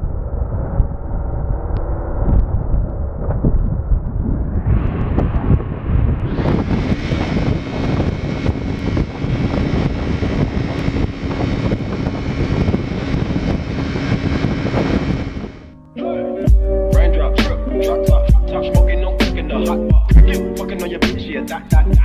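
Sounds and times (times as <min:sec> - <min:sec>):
wind rush on microphone: 0:00.0 - 0:15.8
motorcycle engine cruising: 0:04.9 - 0:15.8.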